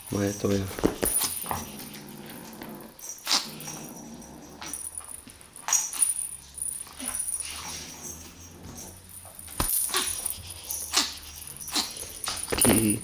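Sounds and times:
paws and toy scuffling on floor: 0.2s - 13.0s
kitten growling: 1.0s - 4.9s, 9.8s - 13.0s.

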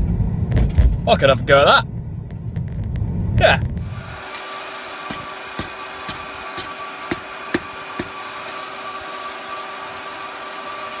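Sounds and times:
steady hum: 3.1s - 11.0s
hammer striking steel on anvil: 5.1s - 8.6s.

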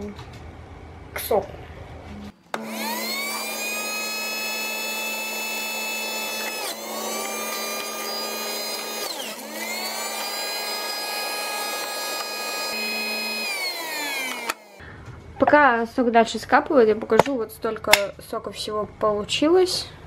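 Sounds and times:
electric juicer motor whining: 2.5s - 14.8s.

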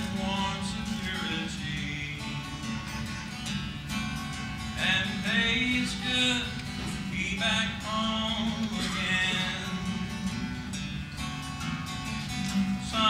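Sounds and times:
man singing: 0.0s - 2.9s, 4.7s - 10.8s, 12.6s - 13.0s
acoustic guitar strumming: 0.0s - 13.0s.

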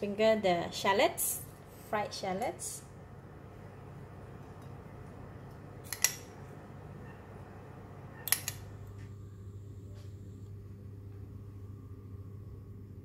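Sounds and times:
low room noise: 0.0s - 13.0s.

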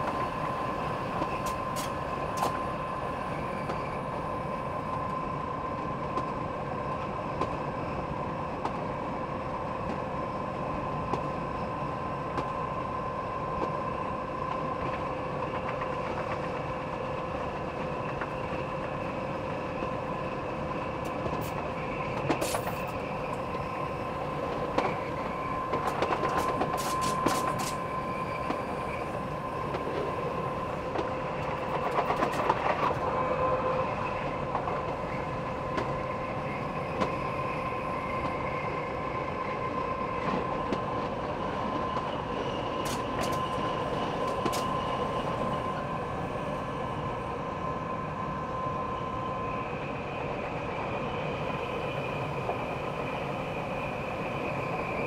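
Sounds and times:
electric train whine: 0.0s - 55.0s
train wheels rumbling: 14.5s - 47.3s.

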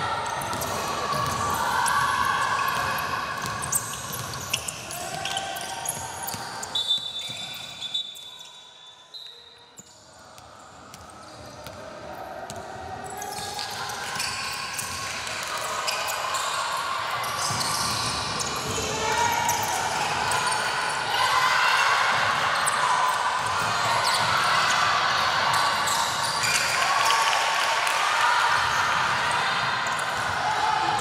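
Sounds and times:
basketball bouncing on court: 0.3s - 2.0s, 2.6s - 6.6s, 10.4s - 11.8s.

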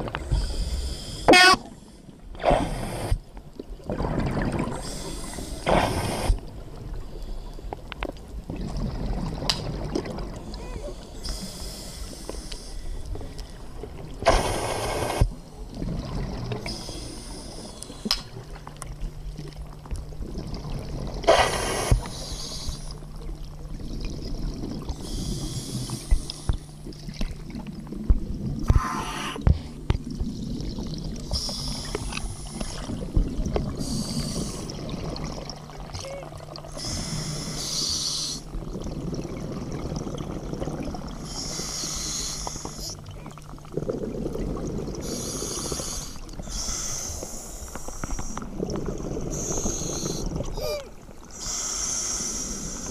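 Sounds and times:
diver breathing through regulator: 28.7s - 29.8s, 33.8s - 34.8s, 36.8s - 38.5s, 41.2s - 43.0s, 45.0s - 48.6s, 49.2s - 52.9s.

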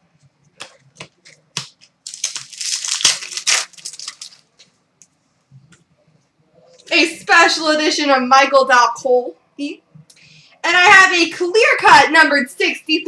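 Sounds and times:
foil wrapper crinkling and tearing: 1.8s - 4.6s.

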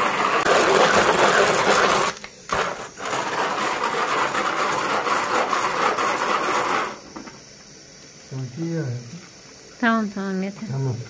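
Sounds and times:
hand-cranked food chopper whirring: 0.0s - 7.2s.

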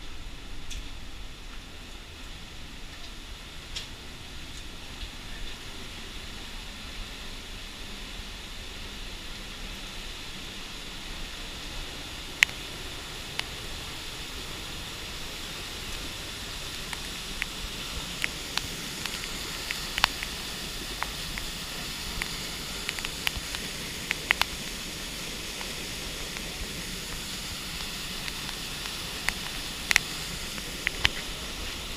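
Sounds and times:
waterfall rushing: 2.6s - 31.9s
sharp clicks: 16.7s - 24.8s, 25.6s - 31.3s.

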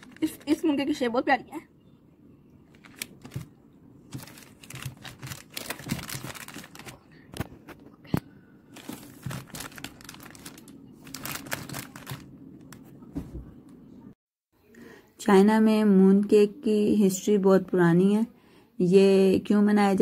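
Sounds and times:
plastic wrappers crinkling: 0.0s - 0.8s, 2.7s - 7.5s, 8.7s - 12.9s.

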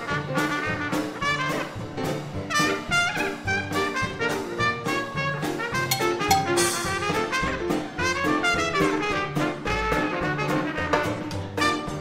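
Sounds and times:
jazz dance orchestra: 0.0s - 12.0s
trumpet lead: 2.5s - 12.0s.

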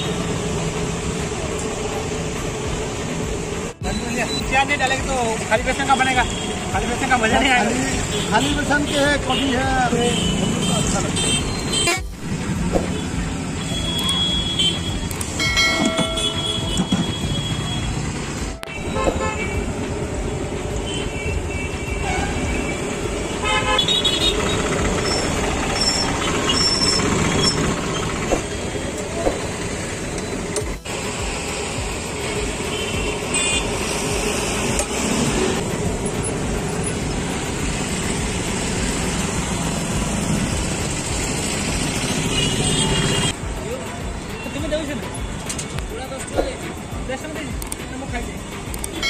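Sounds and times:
busy traffic noise: 0.0s - 49.0s
vehicle horns honking: 5.9s - 7.2s, 7.9s - 12.2s, 12.8s - 19.8s, 20.8s - 28.9s, 32.6s - 34.1s, 42.1s - 43.4s.

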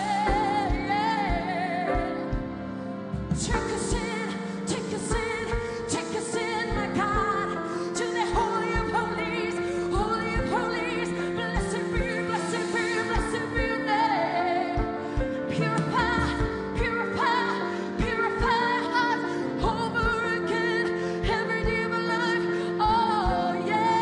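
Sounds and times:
steady drum beat: 0.0s - 7.6s, 14.8s - 17.2s
woman singing with vibrato: 0.0s - 24.0s
worship band playing: 0.0s - 24.0s.

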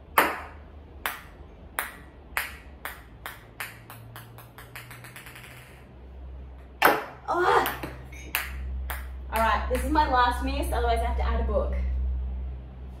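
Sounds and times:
ping pong ball bouncing: 0.0s - 5.9s, 6.8s - 10.1s.

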